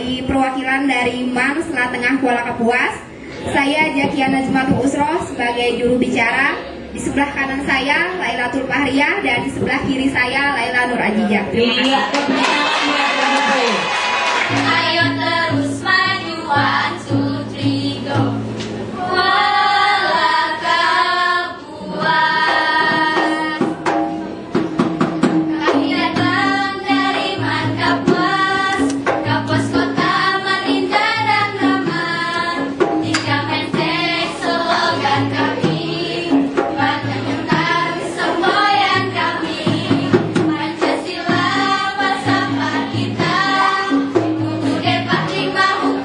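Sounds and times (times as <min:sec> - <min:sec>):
percussive beat: 0:11.6 - 0:18.4, 0:22.0 - 0:46.0
low accompaniment notes: 0:13.6 - 0:46.0
girls singing together: 0:13.7 - 0:24.1, 0:25.5 - 0:46.0.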